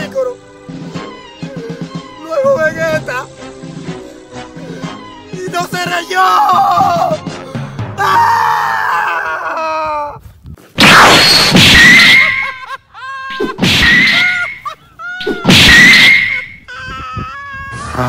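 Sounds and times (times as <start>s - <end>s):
man screaming: 6.0s - 7.2s, 8.0s - 10.2s
cartoon punch crashes: 10.8s - 12.5s, 13.4s - 14.5s, 15.2s - 16.5s.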